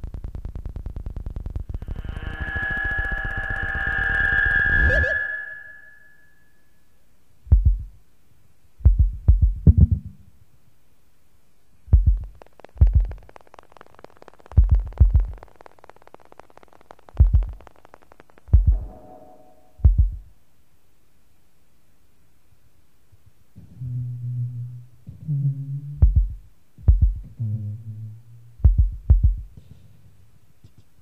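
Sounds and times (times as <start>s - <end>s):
held tone: 1.7s - 6.6s
low muffled thumps: 7.5s - 7.9s, 8.8s - 10.1s, 11.9s - 13.2s, 19.8s - 20.3s, 26.0s - 27.4s, 28.6s - 29.6s
faint crackling: 12.1s - 19.8s.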